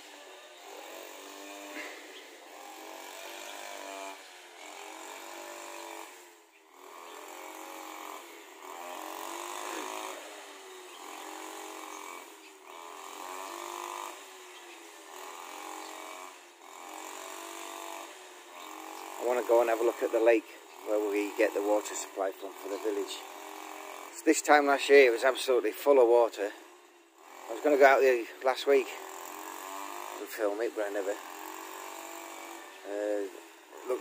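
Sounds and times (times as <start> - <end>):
grass trimmer engine revving: 0.0 - 34.0.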